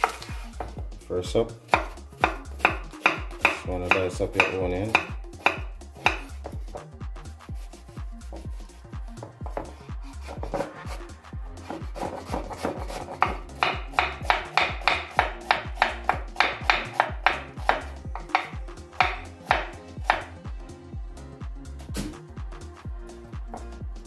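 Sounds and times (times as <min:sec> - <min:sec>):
knife chopping on wooden board: 0:00.0 - 0:00.8, 0:01.7 - 0:06.9, 0:09.2 - 0:11.0, 0:11.6 - 0:20.4, 0:21.9 - 0:22.2
background music with beat: 0:00.0 - 0:24.0.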